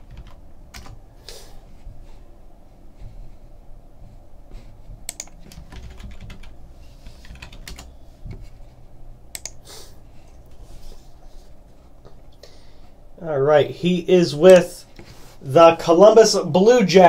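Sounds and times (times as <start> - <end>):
computer keyboard key clicks: 5.1 - 6.5, 9.4 - 9.6.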